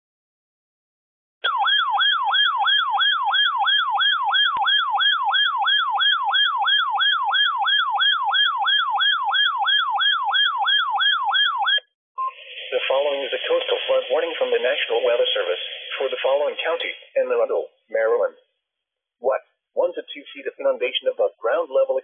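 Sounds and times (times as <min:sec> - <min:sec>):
electronic alert siren sweeping down: 0:01.4 - 0:16.9.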